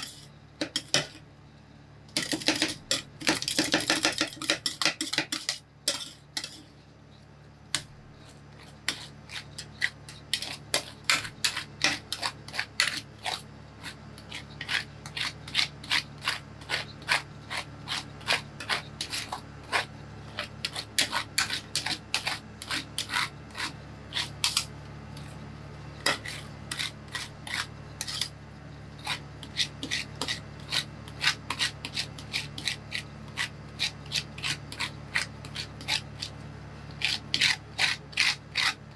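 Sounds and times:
metal spatulas scraping steel plate: 0.0s - 1.2s, 2.2s - 6.8s, 8.2s - 24.7s, 26.0s - 28.3s
steady low hum: 0.0s - 38.9s.

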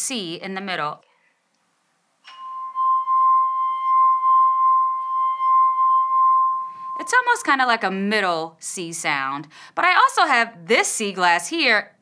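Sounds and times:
wine glass singing tone: 2.2s - 7.3s.

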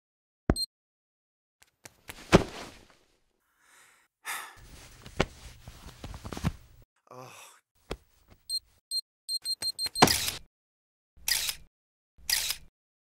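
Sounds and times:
breathy character vocal sounds: 3.5s - 4.6s, 7.0s - 7.7s.

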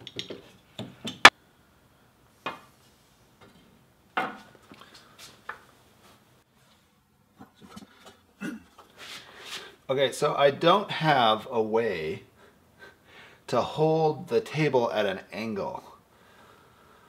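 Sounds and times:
knocks and clicks of wood and metal: 0.0s - 1.3s.

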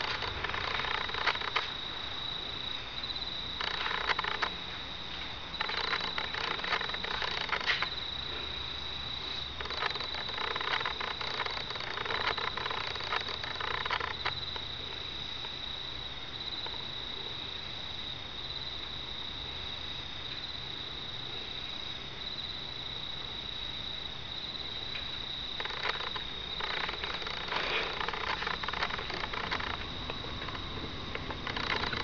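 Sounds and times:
rustling noise: 0.0s - 1.8s, 3.6s - 8.0s, 25.6s - 32.0s
crickets chirring: 0.0s - 32.0s.

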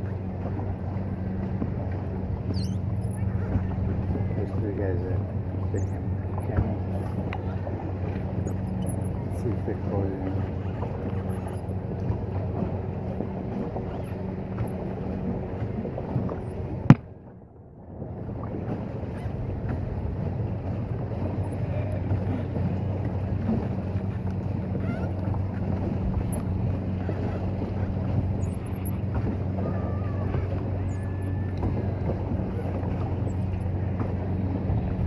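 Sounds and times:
low steady hum: 0.0s - 35.0s
water noise: 0.0s - 35.0s
wind on microphone: 17.8s - 35.0s.

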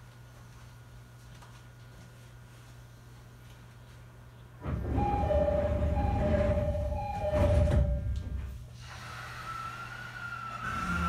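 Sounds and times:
level crossing alarm ringing: 4.6s - 8.5s
electric train rumbling: 4.6s - 11.0s.

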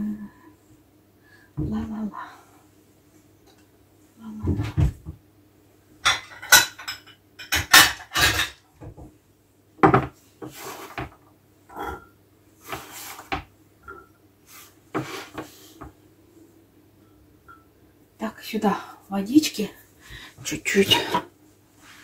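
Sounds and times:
dishes and utensils clattering: 6.0s - 8.6s, 9.8s - 12.1s
scraping on cutting board: 10.4s - 11.1s, 12.6s - 13.4s, 14.5s - 15.8s.

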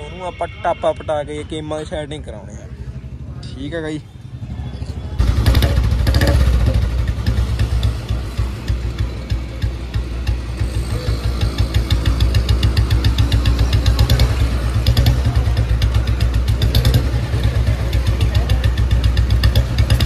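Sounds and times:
motorcycle engine idling: 2.1s - 20.0s
metallic ticking: 5.2s - 20.0s.

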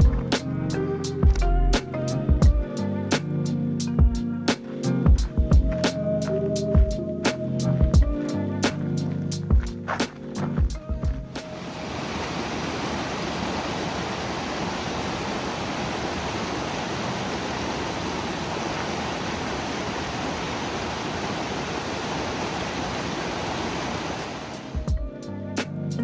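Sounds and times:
creek rushing over boulders: 9.9s - 24.9s.

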